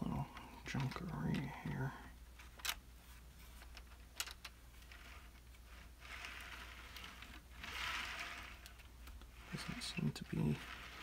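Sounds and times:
small clicks: 3.6 - 9.3
model train wheels rolling hiss: 5.8 - 11.0.

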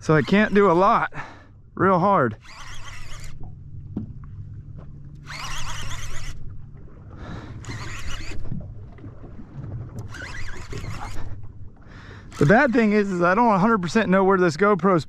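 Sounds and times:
fishing reel cranking: 0.0 - 1.3, 1.9 - 3.6, 5.2 - 6.6, 7.3 - 8.6, 10.0 - 11.4, 12.2 - 14.0
idling boat engine hum: 0.0 - 15.0.

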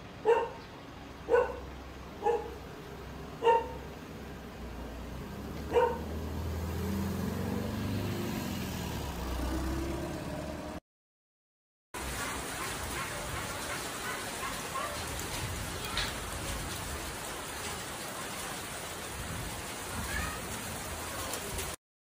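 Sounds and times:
vehicle engine rumble: 0.0 - 10.8
dog barking: 0.2 - 0.6, 1.3 - 1.6, 2.2 - 2.6, 3.4 - 3.9, 5.7 - 6.1, 12.2 - 15.2.

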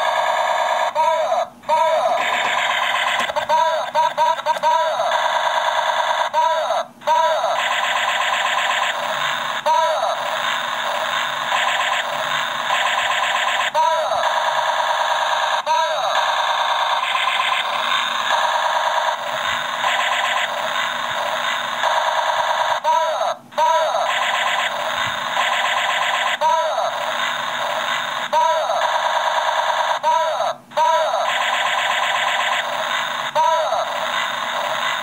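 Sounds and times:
toy laser gun sound effect: 0.0 - 35.0.

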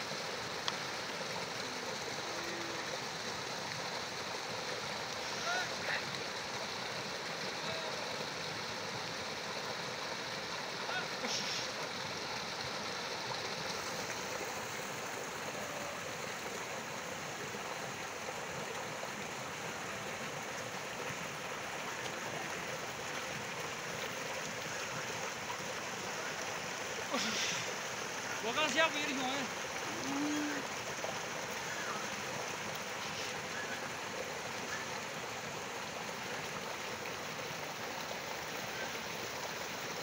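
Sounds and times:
stream rushing over rocks: 0.0 - 40.0.

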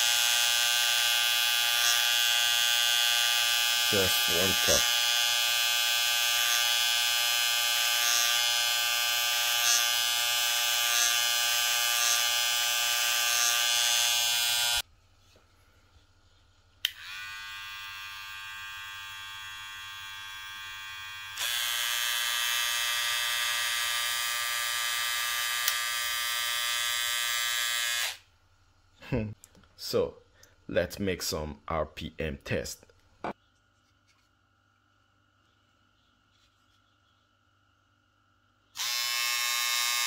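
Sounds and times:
hair clipper buzzing: 0.0 - 14.8, 16.8 - 28.2, 38.8 - 40.0.

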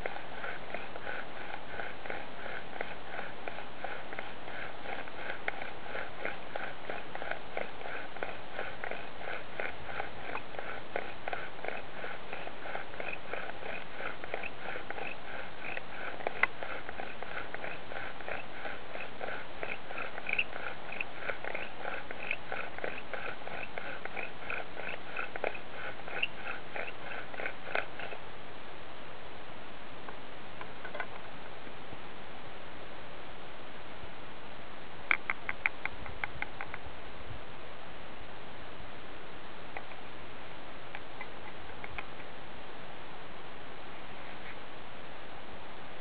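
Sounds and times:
bow drill spindle grinding wood: 0.0 - 28.2.

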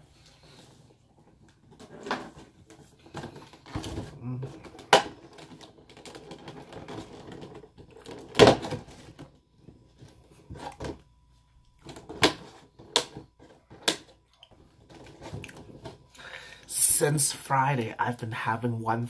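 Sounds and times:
plastic container crackling: 0.4 - 10.9.

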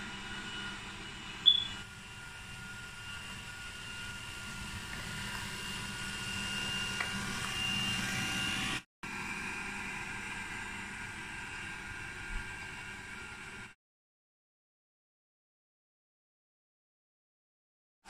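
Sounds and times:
robot vacuum whirring: 1.4 - 8.8.

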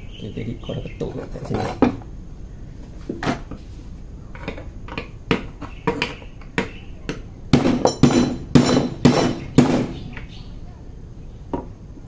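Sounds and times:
metallic knocks on metal part: 4.5 - 10.3.

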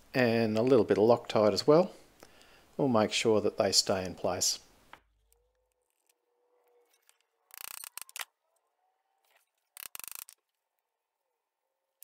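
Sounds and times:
rasping on small metal parts: 5.3 - 8.3, 9.2 - 10.6.

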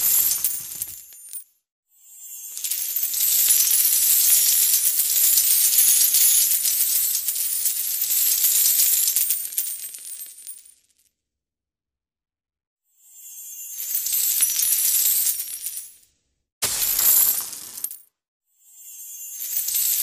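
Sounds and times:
coins falling and clinking: 0.0 - 1.4, 2.4 - 10.7, 13.5 - 16.0, 16.6 - 18.1, 19.0 - 20.0.

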